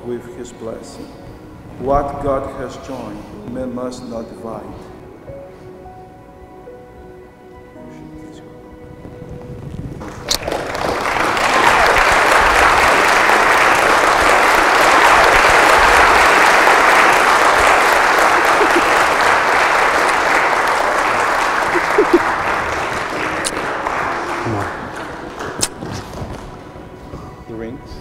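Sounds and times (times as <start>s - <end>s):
congregation applauding: 10.0s - 27.0s.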